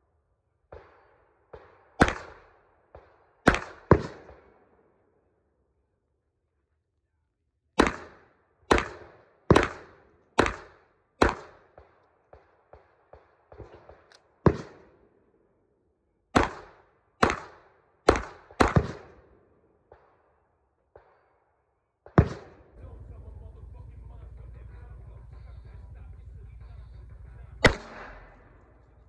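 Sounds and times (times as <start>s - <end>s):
handgun shots: 1.5s - 2.4s, 3.0s - 4.4s, 7.8s - 11.9s, 16.4s - 19.2s, 27.6s - 28.7s.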